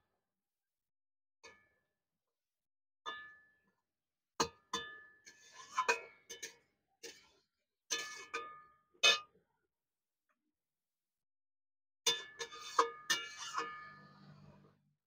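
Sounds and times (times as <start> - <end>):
spatula scraping pan: 12.4 - 14.7.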